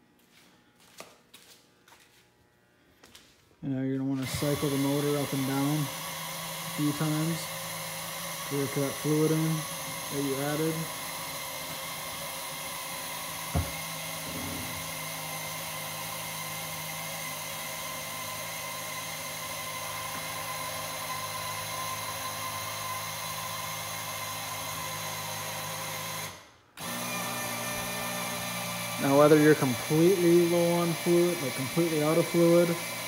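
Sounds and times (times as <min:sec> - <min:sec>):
electric pump motor whining: 0:03.9 - 0:33.0
short knock: 0:13.6 - 0:13.8.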